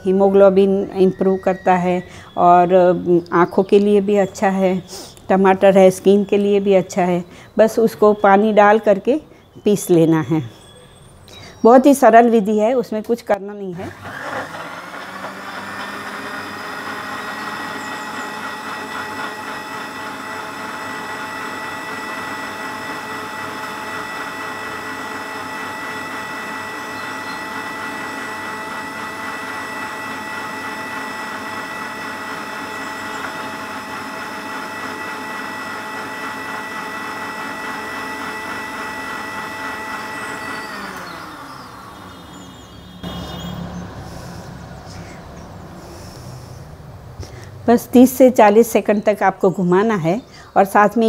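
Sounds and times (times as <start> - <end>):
mixer grinder motor whining: 0.0 - 9.6, 13.7 - 49.0.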